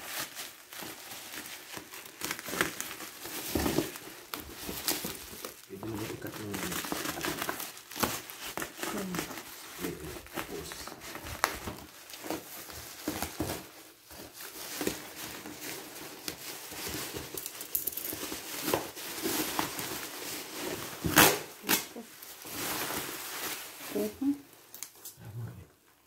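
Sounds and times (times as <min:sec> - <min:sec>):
plastic crinkling and rustling: 0:00.0 - 0:25.2.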